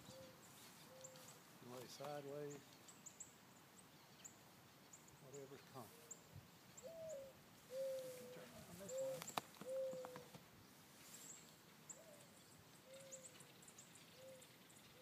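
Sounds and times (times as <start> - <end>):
dove cooing: 0.0 - 1.3, 6.8 - 10.4, 11.9 - 13.5, 14.1 - 15.0
faint high bird chirps: 11.2 - 15.0.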